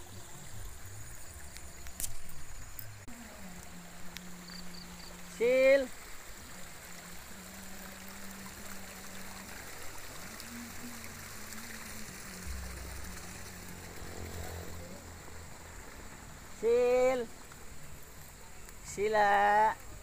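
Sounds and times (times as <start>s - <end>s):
running water rushing: 0.0s - 20.0s
low rumble: 12.0s - 16.6s.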